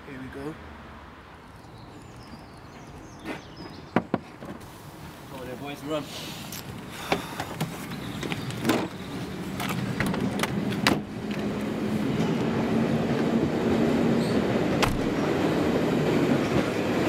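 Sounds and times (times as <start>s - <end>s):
train rumbling along track: 7.2s - 17.0s.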